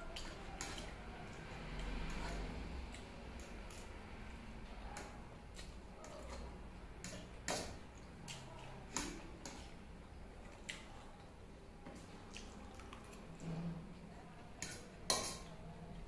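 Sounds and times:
wet chewing and mouth clicks: 12.1s - 13.4s.

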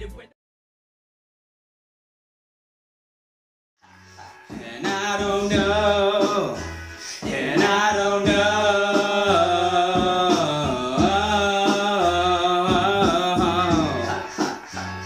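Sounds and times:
backing beat with bass: 3.8s - 15.0s
man singing: 4.5s - 14.3s.

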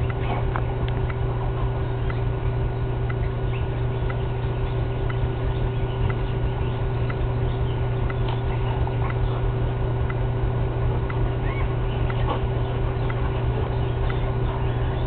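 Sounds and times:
steady low hum: 0.0s - 15.0s
faint ticks: 3.0s - 5.3s, 6.0s - 6.4s, 7.0s - 7.3s.

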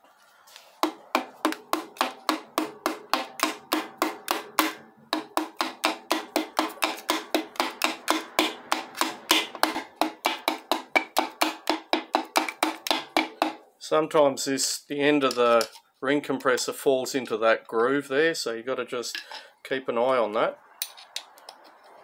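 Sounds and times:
rapid ringing metal taps: 1.5s - 13.6s.

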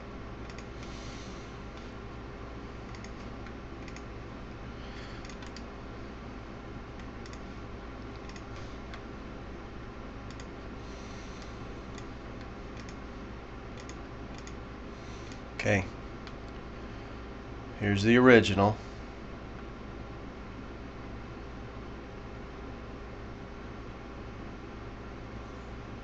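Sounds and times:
steady low hum: 0.0s - 26.0s
mouse and keyboard clicking: 0.4s - 0.8s, 2.9s - 4.1s, 5.2s - 5.7s, 7.0s - 7.4s, 8.1s - 9.0s, 10.3s - 10.5s, 11.9s - 13.0s, 13.8s - 14.6s.

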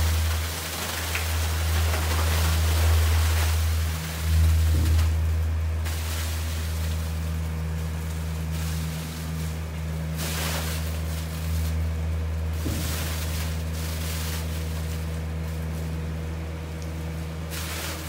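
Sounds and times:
grapes splashing into a metal hopper: 0.0s - 18.0s
tractor engine droning: 0.0s - 18.0s.

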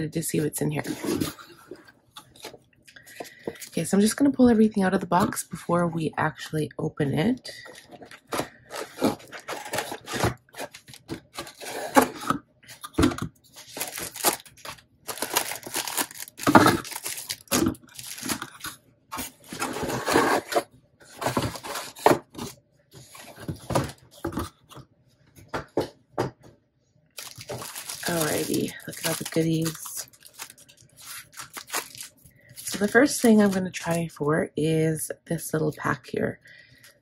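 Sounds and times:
paper and cardboard rustling: 0.7s - 3.8s, 7.6s - 24.8s, 27.2s - 34.1s
plastic packaging crinkling: 7.6s - 24.5s, 27.2s - 34.2s.

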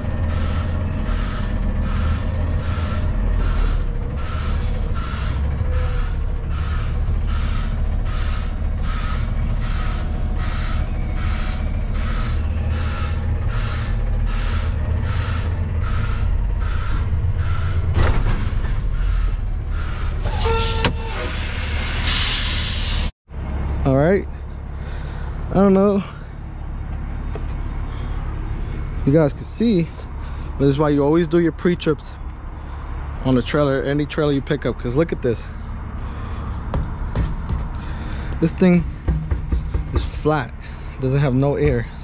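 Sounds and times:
truck backup alarm beeping: 0.0s - 17.8s
diesel truck engine running: 0.0s - 42.0s
air brakes hissing: 20.2s - 23.1s.

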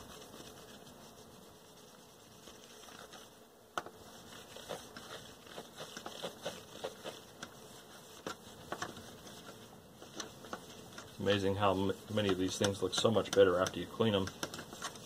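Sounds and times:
paper towel rubbing glass: 0.0s - 3.4s, 4.1s - 15.0s.

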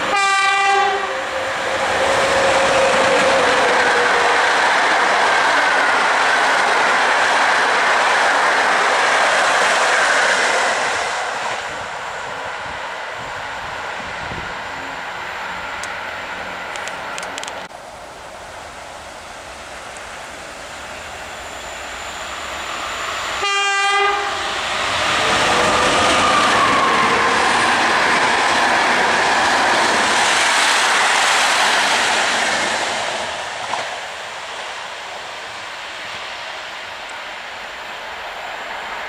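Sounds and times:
train horn blast: 0.0s - 1.2s, 23.4s - 24.6s
train passing at speed: 0.0s - 39.0s.

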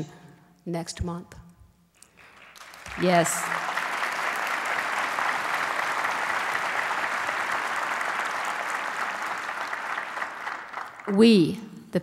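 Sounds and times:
audience applauding: 2.0s - 11.5s.

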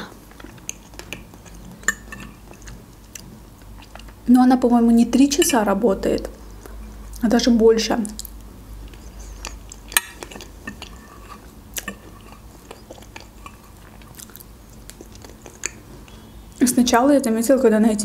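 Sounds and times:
close chewing: 0.0s - 4.2s, 8.2s - 16.3s.

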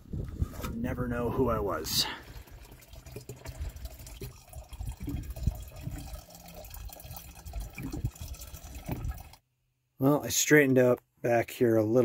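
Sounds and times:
water pouring into plastic jug: 0.1s - 9.4s
low thuds: 8.8s - 9.3s.

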